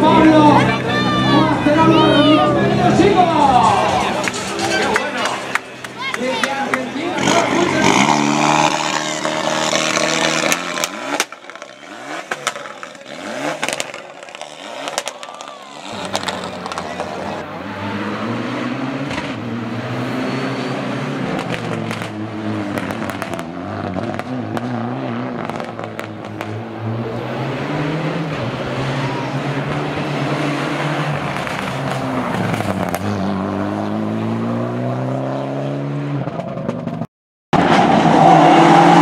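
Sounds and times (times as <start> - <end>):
rally car engine revving: 0.0 - 39.0
engine pops and crackles: 9.8 - 17.2, 25.4 - 26.6.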